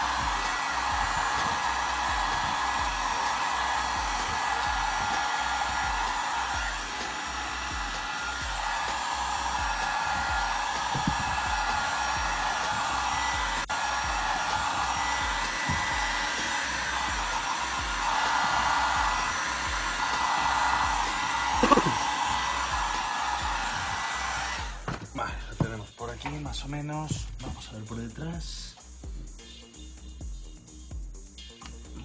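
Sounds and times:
heat gun fan blowing: 0.0s - 24.8s.

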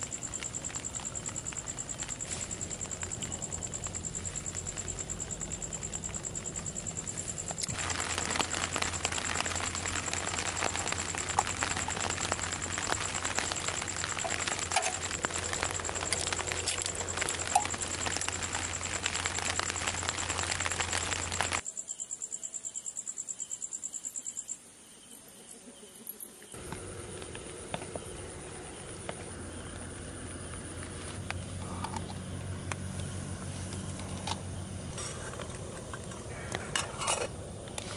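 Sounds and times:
pot hissing on camp stove: 0.0s - 21.6s.

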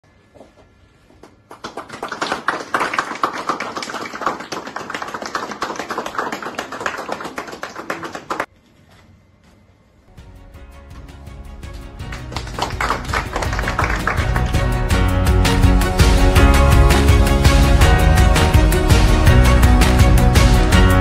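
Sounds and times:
people clapping: 1.2s - 8.5s, 12.0s - 21.0s.

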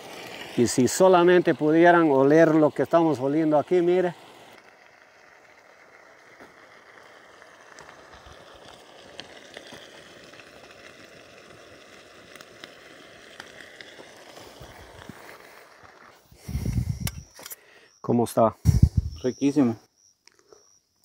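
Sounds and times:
wood fire hissing and crackling: 0.0s - 21.0s
muffled low rumble: 18.6s - 19.3s.

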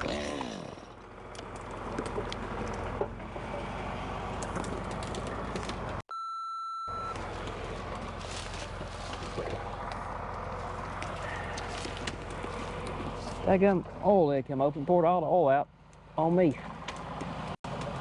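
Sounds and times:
engine idling: 0.6s - 6.0s, 7.0s - 18.0s
high steady beep: 6.1s - 7.2s.

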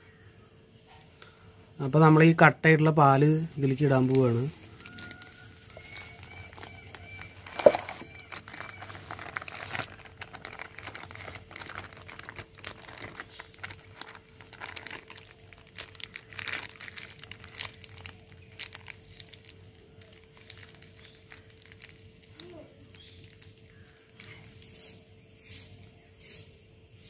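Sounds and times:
faint steady hum: 0.0s - 27.0s
plastic packet crinkling: 3.1s - 24.6s.

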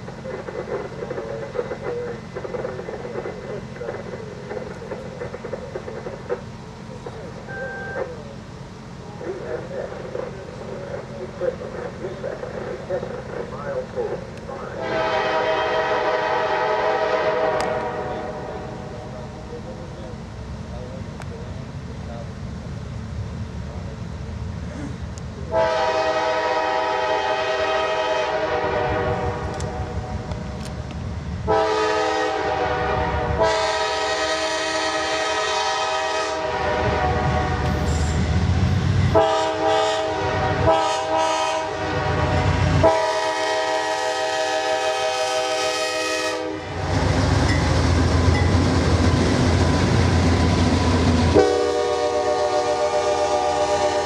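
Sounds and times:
train rumbling past: 0.0s - 54.0s
locomotive air horn: 14.8s - 18.6s, 25.5s - 29.8s, 31.5s - 37.6s, 39.1s - 46.8s, 51.3s - 54.0s
wheels clattering on rails: 47.0s - 49.6s.

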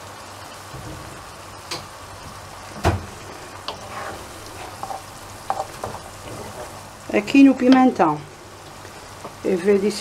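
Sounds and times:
vegetables sizzling in oil: 0.0s - 10.0s
wooden spoon knocking on pan: 4.8s - 6.5s.

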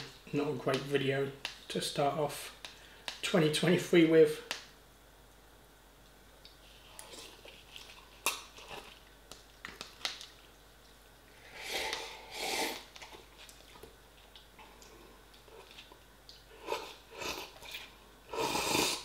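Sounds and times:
loud noodle slurps: 11.5s - 12.9s, 16.6s - 19.0s.

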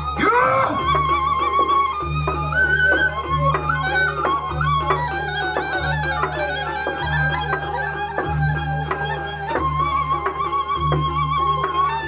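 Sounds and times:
gamelan music: 0.0s - 12.0s.

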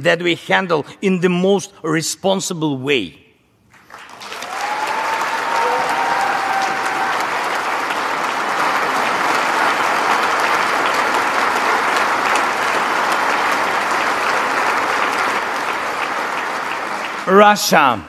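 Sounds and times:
large audience applauding: 3.7s - 18.0s.

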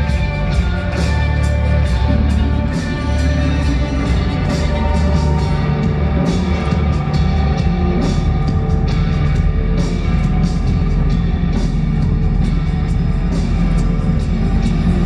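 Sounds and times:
rock music over loudspeakers: 0.0s - 15.0s.

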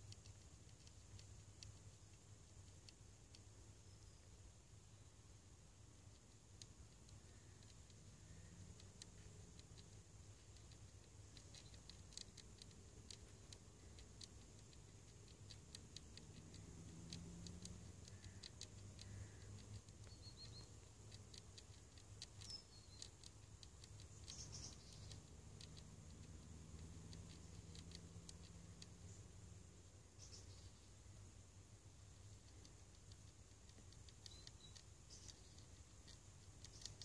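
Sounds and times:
low steady hum: 0.0s - 37.0s
wasp scratching wood: 6.0s - 29.4s, 32.1s - 37.0s.

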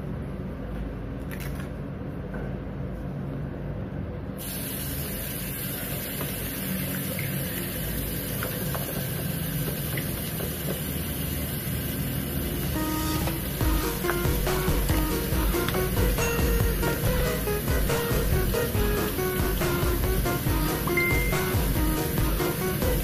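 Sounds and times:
tap water running into basin: 4.4s - 23.0s
low steady hum: 11.0s - 23.0s.

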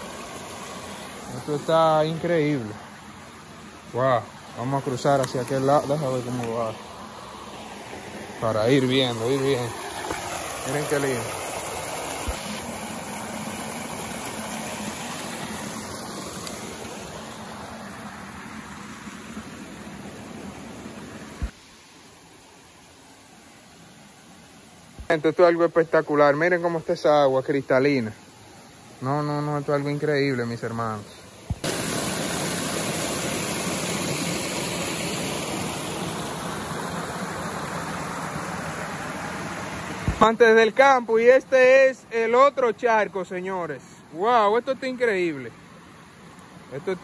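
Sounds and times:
river water rushing over rocks: 0.0s - 25.1s, 31.3s - 42.4s.

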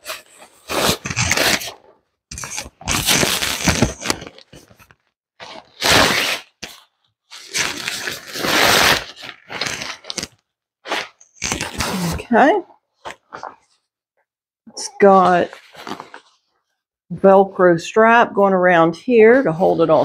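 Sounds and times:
fabric bag rustling and scraping: 7.3s - 10.3s, 15.0s - 16.4s.

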